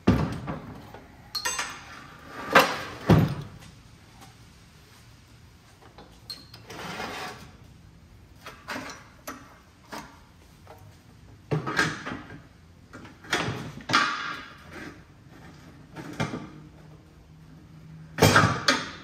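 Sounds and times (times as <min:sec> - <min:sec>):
tools clattering and scraping: 0:00.0 - 0:04.4, 0:05.8 - 0:07.6, 0:08.4 - 0:17.0.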